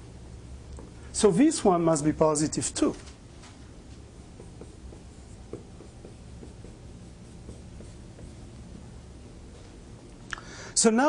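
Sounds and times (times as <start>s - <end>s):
low room hum: 0.0s - 11.0s
writing on a board: 4.0s - 8.9s.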